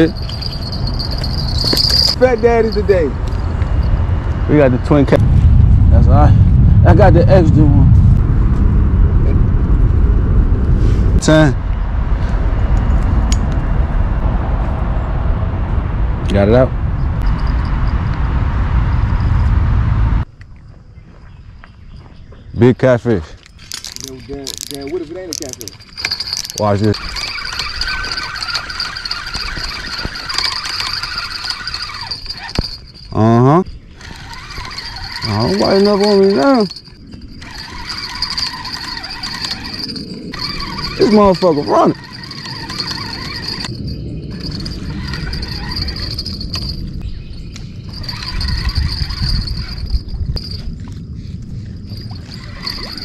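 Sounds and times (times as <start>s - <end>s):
fishing reel gears whirring: 0.0s - 3.9s, 23.6s - 33.2s, 33.9s - 47.0s, 47.9s - 51.0s, 51.8s - 53.0s
high insect trill: 0.0s - 5.0s, 17.2s - 18.2s, 20.3s - 53.0s
low rumble: 0.0s - 20.3s.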